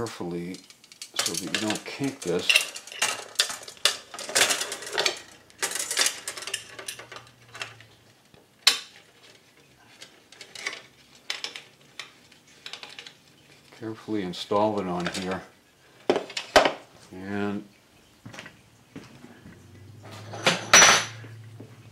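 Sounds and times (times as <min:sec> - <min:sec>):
metal clinks and scraping: 0:00.4 - 0:07.9, 0:20.0 - 0:21.4.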